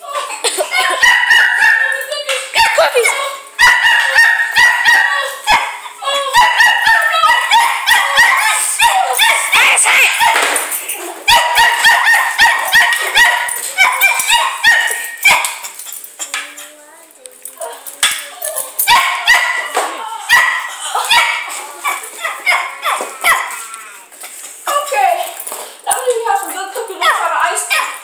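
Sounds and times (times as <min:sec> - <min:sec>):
dog yapping: 0:00.8 - 0:10.6, 0:11.3 - 0:16.1, 0:18.8 - 0:23.7, 0:27.0 - 0:28.0.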